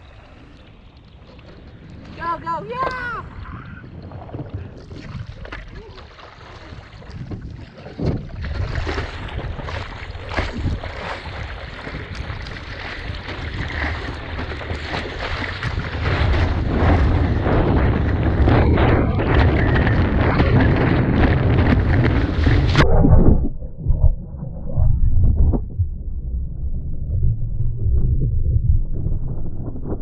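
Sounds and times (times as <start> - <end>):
water splashing around surfboard: 0.0 - 25.8
wind buffeting microphone: 1.3 - 30.0.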